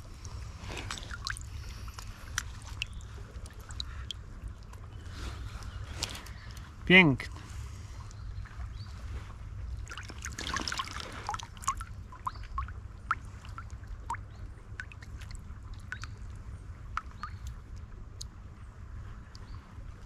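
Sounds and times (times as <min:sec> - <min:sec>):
water splashing: 0:00.0 - 0:04.9, 0:09.8 - 0:16.3
steady low rumble: 0:00.0 - 0:20.0
water drips and plinks: 0:00.2 - 0:05.0, 0:09.8 - 0:18.4.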